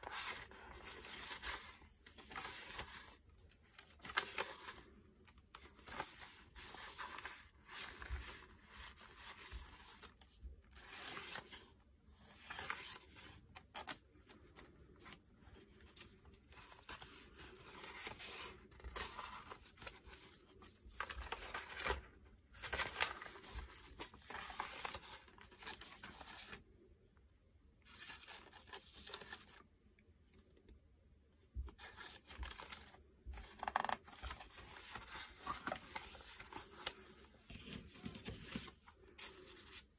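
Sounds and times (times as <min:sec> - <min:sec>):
paper rustling: 0:00.0 - 0:26.6, 0:31.6 - 0:39.9.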